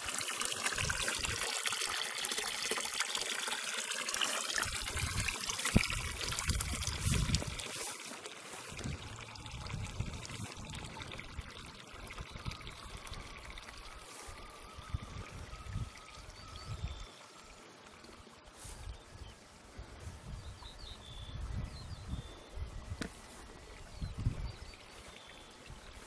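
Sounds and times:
water trickling into a trough: 0:00.0 - 0:26.0
wind gusting on microphone: 0:04.6 - 0:07.7, 0:08.7 - 0:13.2, 0:19.8 - 0:23.1, 0:23.9 - 0:24.7.

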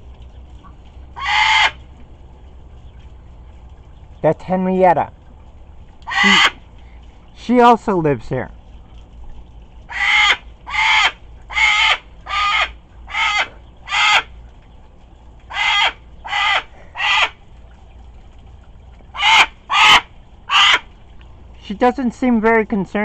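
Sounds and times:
cockatoo harsh grumbling calls: 0:01.2 - 0:01.8, 0:06.1 - 0:06.6, 0:09.9 - 0:14.3, 0:15.5 - 0:17.4, 0:19.2 - 0:20.9.

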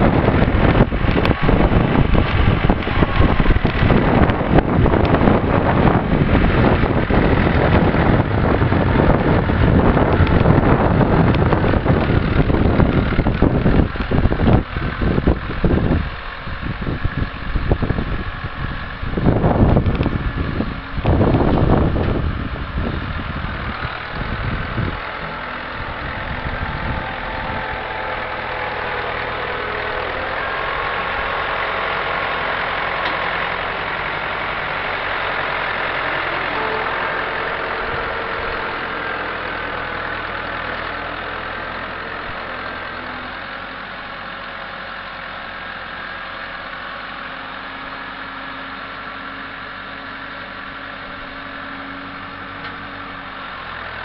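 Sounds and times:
wind buffeting microphone: 0:00.0 - 0:43.1
tractor diesel engine under load: 0:00.0 - 0:54.0.

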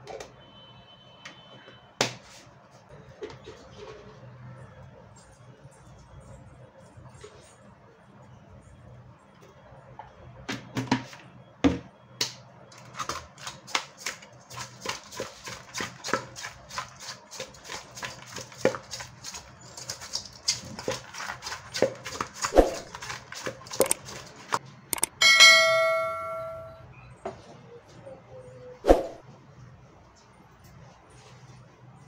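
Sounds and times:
fish mixed by hand in steel bowl: 0:12.9 - 0:24.6.

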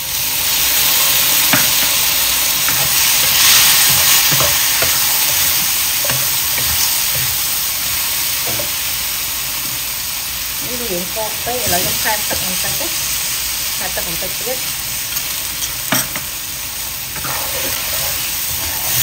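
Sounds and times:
shrimp sizzling in a wok: 0:00.0 - 0:19.0
spatula scraping and tapping pan: 0:02.6 - 0:07.4, 0:08.4 - 0:08.8, 0:15.1 - 0:16.3, 0:17.1 - 0:19.0.

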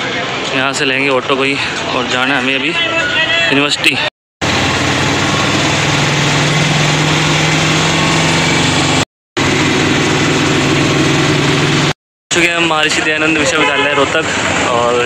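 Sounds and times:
road noise: 0:00.0 - 0:15.0
auto-rickshaw engine running: 0:04.4 - 0:15.0.

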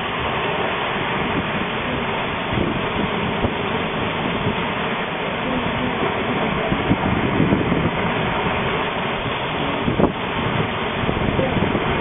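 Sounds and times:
waves breaking along hull: 0:00.0 - 0:12.0
wind on microphone: 0:00.0 - 0:12.0
wind rushing: 0:05.8 - 0:12.0.

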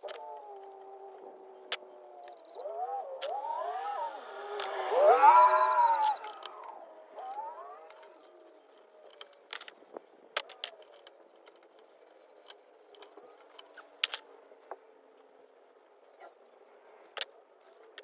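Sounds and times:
faint background drone: 0:00.0 - 0:18.0.

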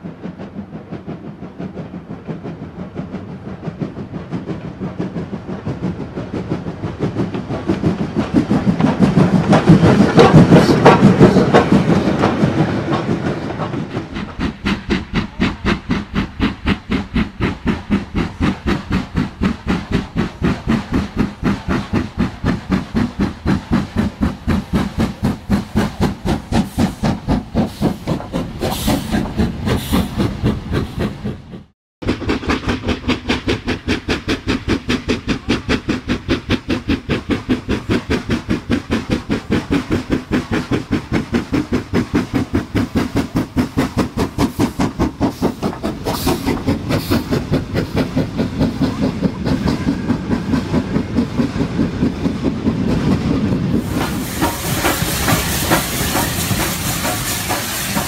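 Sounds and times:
steam locomotive chuffing: 0:00.0 - 0:58.0
hiss of steam: 0:14.1 - 0:31.4, 0:33.1 - 0:58.0.

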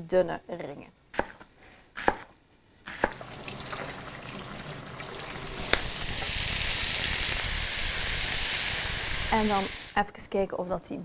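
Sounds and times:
vegetables sizzling in frying pan: 0:03.2 - 0:10.0.

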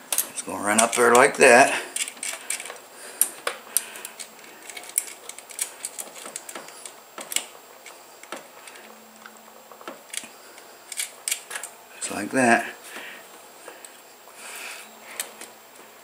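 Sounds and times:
metal parts clicking and tapping: 0:00.1 - 0:01.4, 0:02.0 - 0:08.5, 0:10.9 - 0:11.7.

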